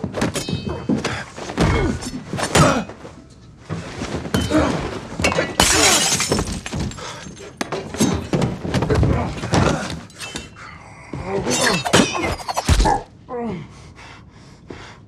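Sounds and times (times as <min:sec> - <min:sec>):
glass shattering: 0:05.2 - 0:08.2, 0:11.5 - 0:12.9.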